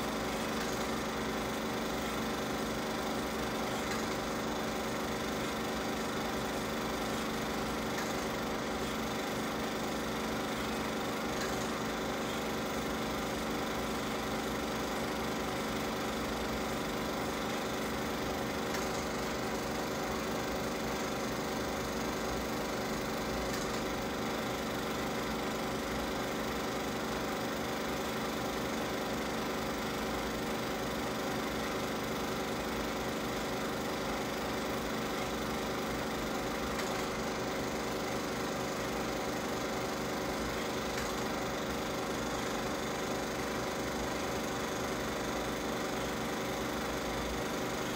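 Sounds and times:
film projector whirring: 0.0 - 47.9.

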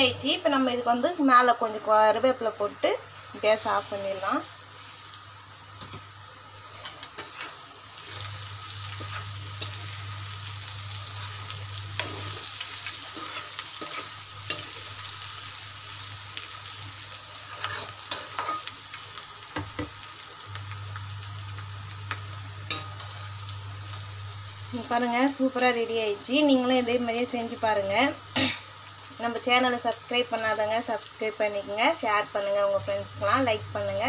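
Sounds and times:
food sizzling: 0.0 - 34.0
spoon scraping metal pan: 12.0 - 14.8, 17.5 - 18.7.

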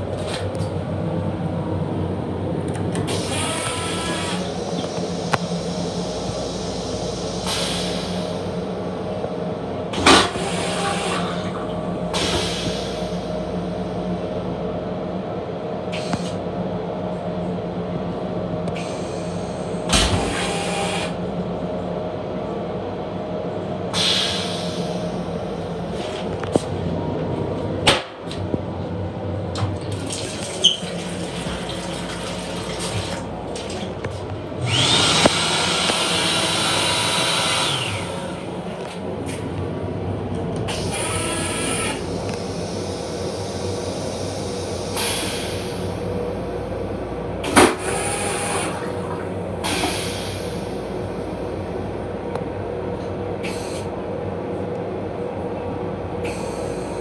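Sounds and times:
train car hum: 0.0 - 57.0
toilet flushing: 10.0 - 13.2, 29.6 - 38.5, 47.4 - 51.0.

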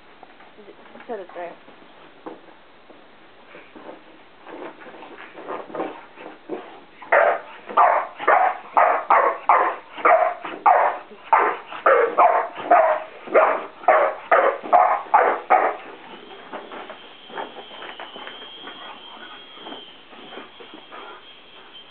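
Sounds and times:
dog barking excitedly: 7.0 - 16.0.

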